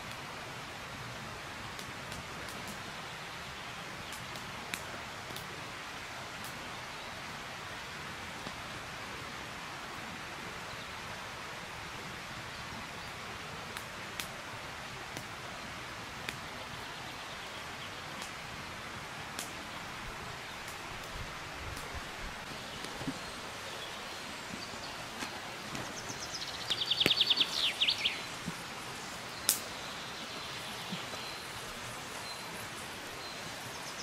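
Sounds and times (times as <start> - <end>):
outdoor rushing hiss: 12.9 - 34.0.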